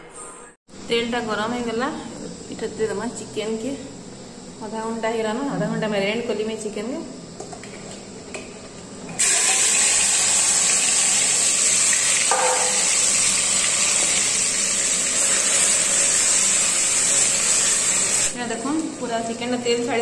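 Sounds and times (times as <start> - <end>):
chicken sizzling in hot oil: 9.2 - 18.4.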